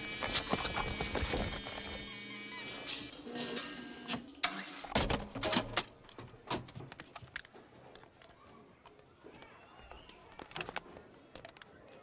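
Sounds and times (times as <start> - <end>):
claw machine mechanism humming: 0.0 - 5.7.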